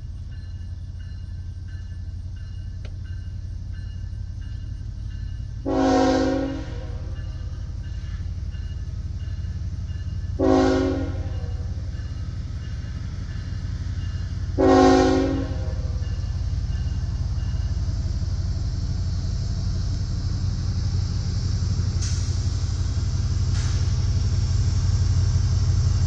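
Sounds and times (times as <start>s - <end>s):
low steady train rumble: 0.0s - 26.0s
locomotive air horn blasts: 5.6s - 7.1s, 10.4s - 11.7s, 14.6s - 16.0s.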